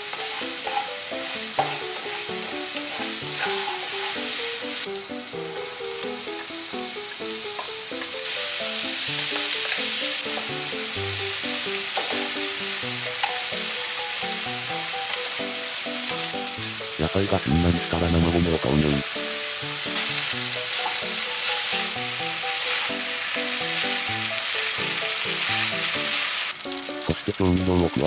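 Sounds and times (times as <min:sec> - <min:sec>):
spatula scraping a pan: 0:00.0 - 0:04.9, 0:11.8 - 0:12.4, 0:19.1 - 0:26.5
light background music: 0:00.0 - 0:28.0
vegetables sizzling in a frying pan: 0:00.0 - 0:28.0.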